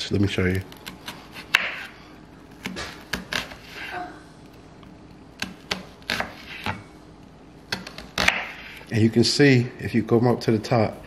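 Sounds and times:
knife slicing onion: 0.7 - 4.0, 5.4 - 6.9, 7.7 - 8.9.

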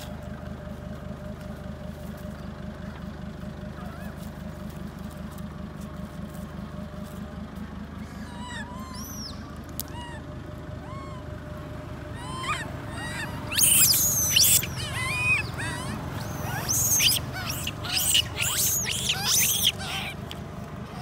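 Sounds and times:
baby monkey squealing: 8.1 - 10.2, 10.8 - 11.2, 12.1 - 20.2.

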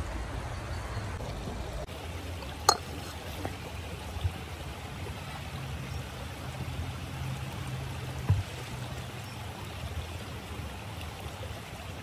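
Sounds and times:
stream running over rocks: 0.0 - 12.0.

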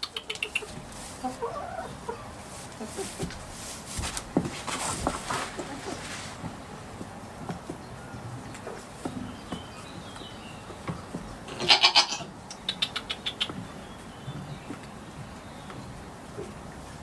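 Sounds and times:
goat bleating: 11.5 - 12.3.

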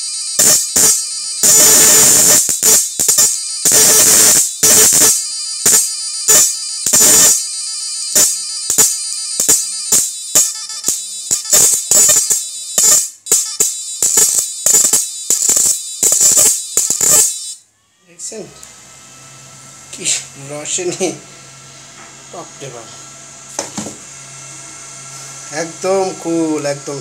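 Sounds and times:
electric arc buzzing and crackling: 0.0 - 17.6
steady electrical tone: 0.0 - 27.0.

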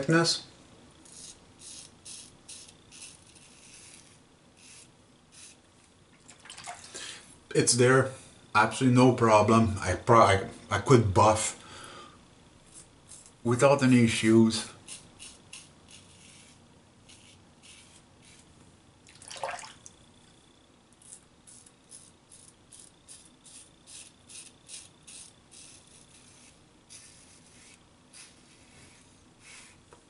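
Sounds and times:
razor scraping stubble: 1.0 - 5.6, 12.7 - 13.5, 14.2 - 18.5, 21.0 - 29.8.

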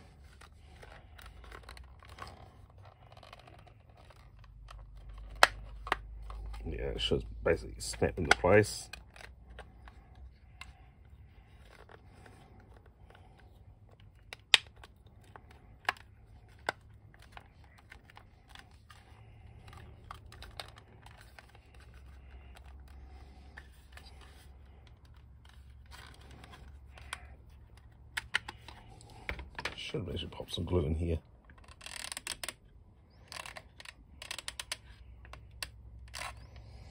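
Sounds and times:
plastic parts being handled: 0.0 - 30.7, 31.3 - 36.9
plastic toy parts clicking: 0.2 - 6.6, 13.9 - 22.9, 31.4 - 36.4.

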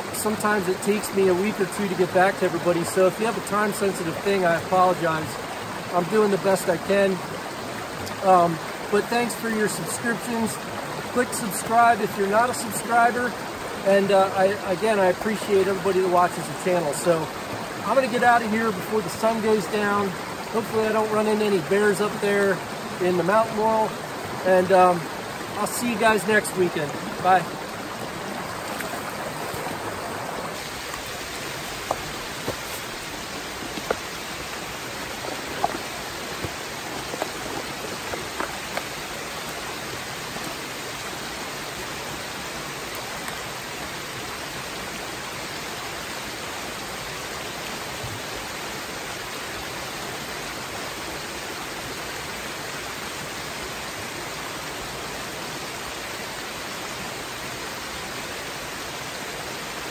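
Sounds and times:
brook rushing over stones: 0.0 - 43.9.

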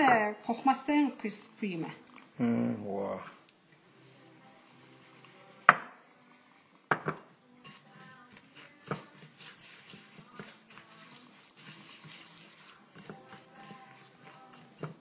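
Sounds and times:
ceramic bowl knocking on wood: 5.7 - 5.9, 6.9 - 7.3.

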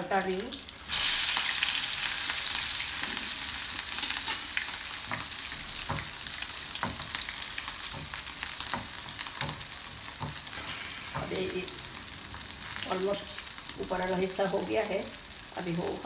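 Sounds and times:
meat patty sizzling in oil: 0.0 - 16.0.

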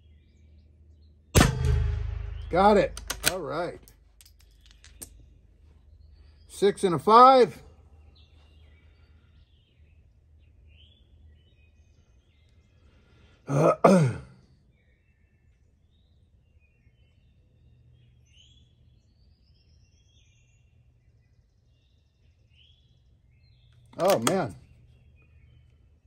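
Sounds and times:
low outdoor background: 0.0 - 26.0
man clearing his throat: 13.5 - 14.4
faint bird chirps: 14.4 - 26.0.

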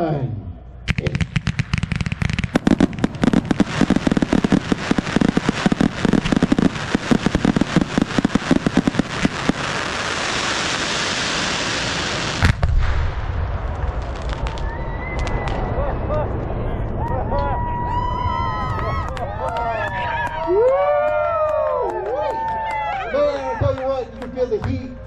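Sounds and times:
fireworks rapid pops: 0.9 - 13.1
fireworks hiss: 0.9 - 13.2
heavy boom with low rumble: 12.4 - 17.6.

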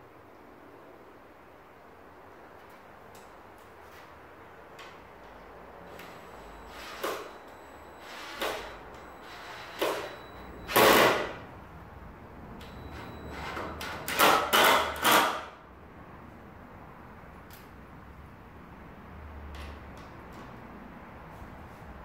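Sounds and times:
cordless drill driving screws: 5.9 - 11.3.

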